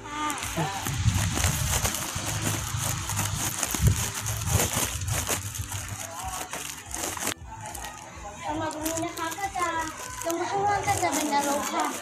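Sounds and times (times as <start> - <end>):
wind noise on microphone: 0.1 - 6.1.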